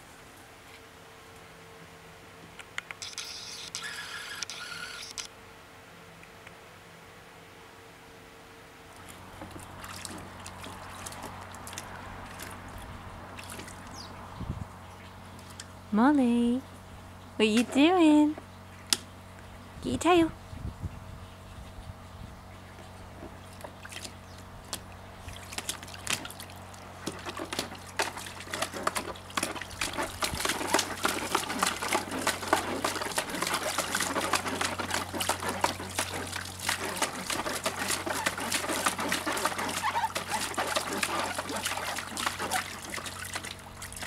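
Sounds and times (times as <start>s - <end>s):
dog splashing water: 9.0s - 14.1s, 23.5s - 44.0s.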